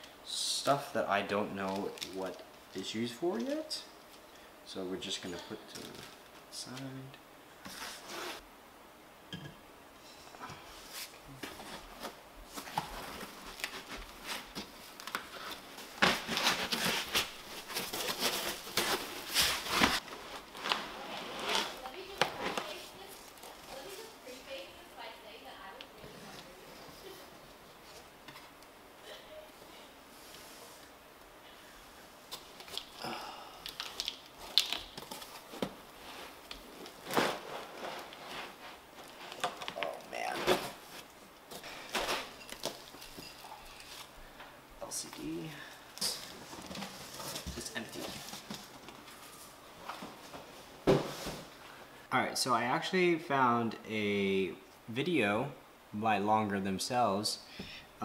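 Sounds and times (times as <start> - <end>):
parts rustling in foam packing: 10.8 - 24.8, 32.3 - 51.8
foam insert rustling in cardboard box: 10.9 - 24.1
foam tray scraping: 15.4 - 23.1.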